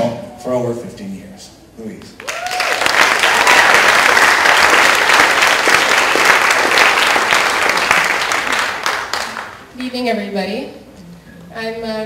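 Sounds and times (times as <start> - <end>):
audience applauding: 2.2 - 9.7.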